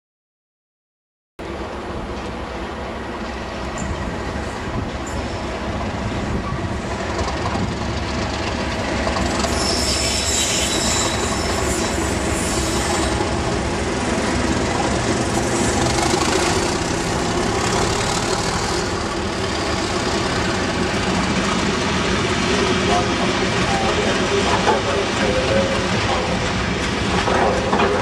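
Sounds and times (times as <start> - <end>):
diesel locomotives under power: 1.4 - 28.0
wagon wheels rolling over rails: 15.2 - 18.9, 27.1 - 28.0.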